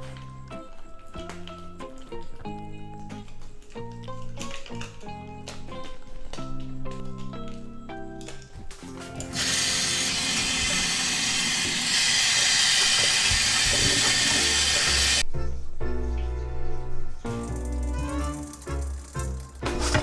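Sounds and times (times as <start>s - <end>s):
background music with held notes: 0.0s - 10.4s, 15.2s - 20.0s
tap water running into sink: 9.3s - 15.2s.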